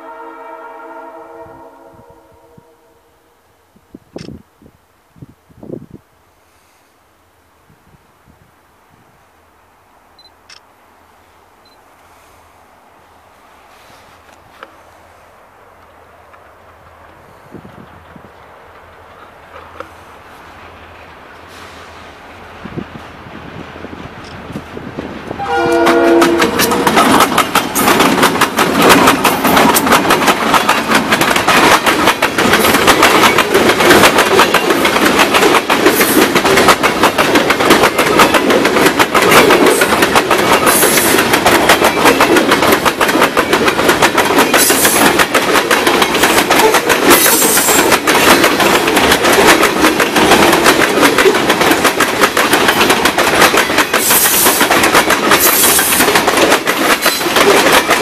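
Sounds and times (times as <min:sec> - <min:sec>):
freight train passing: 0:00.0 - 0:58.0
steel wheels clattering on rails: 0:25.4 - 0:58.0.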